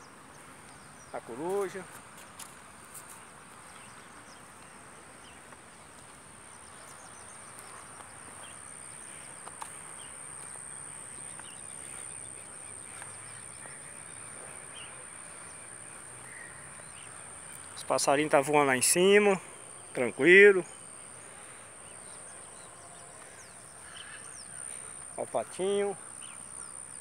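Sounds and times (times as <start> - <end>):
insects trilling: 0.0 - 27.0
faint bird chirps: 6.5 - 18.0.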